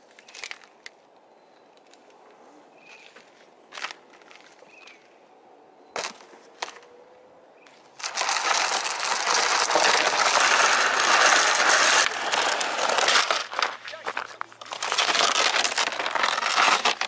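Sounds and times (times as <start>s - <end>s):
plastic sled scraping over asphalt: 7.8s - 17.0s.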